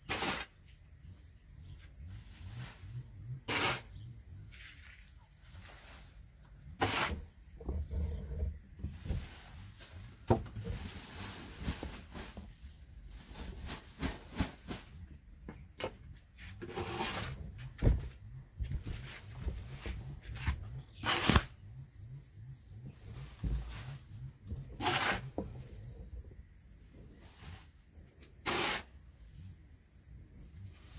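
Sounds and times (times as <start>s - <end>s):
dull thump: 17.8s - 19.6s.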